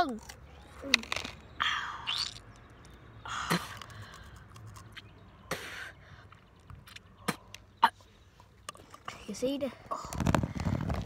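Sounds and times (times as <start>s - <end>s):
wet chewing clicks: 0.0s - 5.5s, 6.2s - 7.8s.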